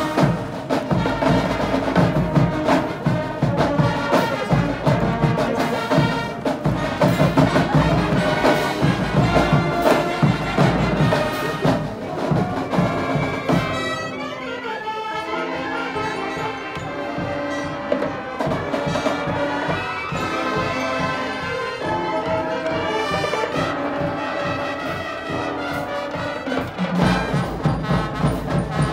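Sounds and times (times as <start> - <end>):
heavy drumming: 0.0 - 14.2, 16.7 - 28.9
marching band brass: 0.0 - 28.9.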